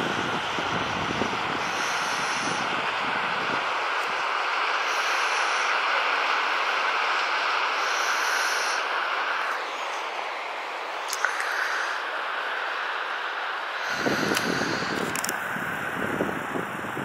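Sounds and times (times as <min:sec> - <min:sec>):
rushing outdoor noise: 0:00.0 - 0:17.0.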